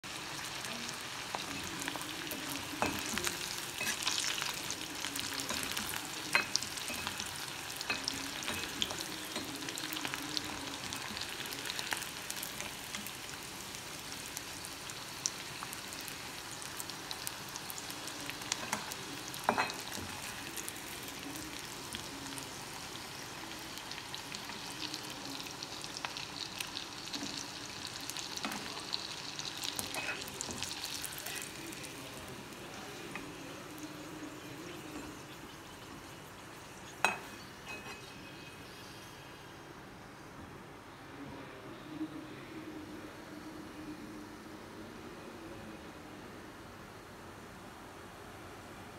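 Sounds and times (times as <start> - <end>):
fish sizzling in oil: 0.0 - 36.0.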